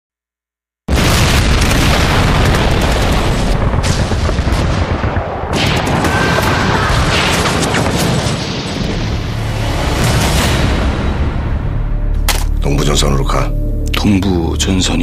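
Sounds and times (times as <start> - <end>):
machine-gun fire: 0.9 - 8.8
heavy explosion booms: 0.9 - 11.7.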